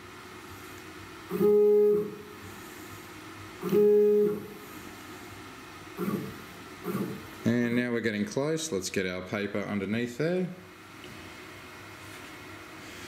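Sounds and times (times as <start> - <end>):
stepper motor whining: 3.6 - 4.5.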